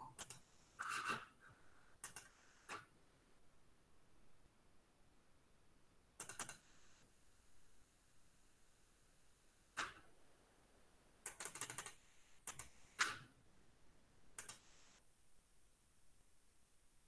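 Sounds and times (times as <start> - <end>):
keyboard and mouse clicks: 0.0 - 1.2, 2.0 - 2.9, 6.2 - 6.7, 11.2 - 13.3, 14.4 - 14.7.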